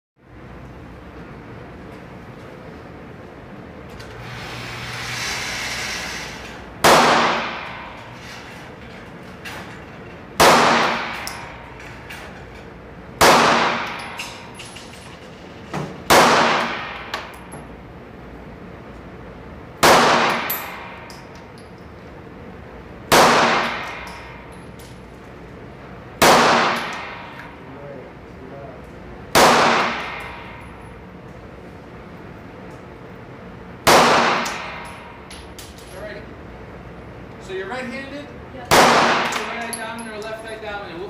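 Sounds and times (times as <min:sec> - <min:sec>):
pistol shots echoing indoors: 0:06.8 - 0:07.9, 0:10.4 - 0:11.5, 0:13.2 - 0:14.4, 0:16.1 - 0:17.4, 0:19.8 - 0:21.0, 0:23.1 - 0:24.3, 0:26.2 - 0:27.4, 0:29.3 - 0:30.7, 0:33.8 - 0:35.0, 0:38.7 - 0:39.6.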